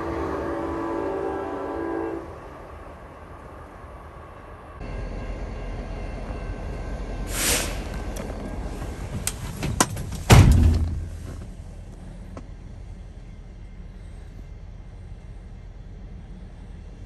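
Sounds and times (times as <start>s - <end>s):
diesel locomotive idling: 0.0s - 17.0s
heavy thump: 9.6s - 11.5s.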